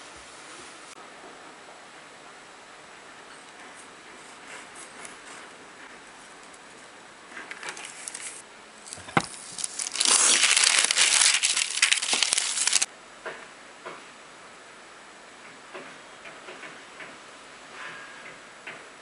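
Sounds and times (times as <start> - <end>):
thin paper rustling and crinkling: 7.3 - 12.9.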